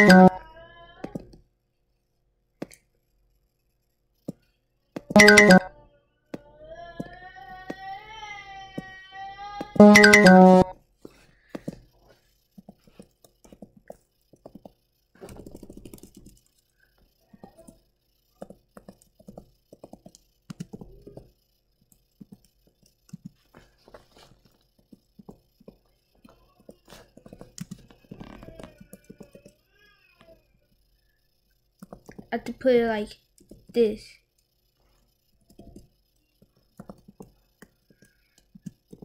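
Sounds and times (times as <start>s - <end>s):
keyboard typing: 0.0s - 0.4s, 5.0s - 5.7s, 9.7s - 10.7s, 12.6s - 16.6s, 18.4s - 23.6s, 24.8s - 29.6s, 31.8s - 32.3s, 35.4s - 39.0s.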